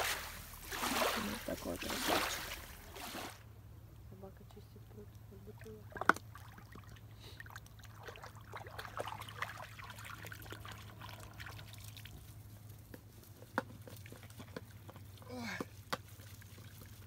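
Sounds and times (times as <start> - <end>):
dog splashing in water: 0.0 - 3.4.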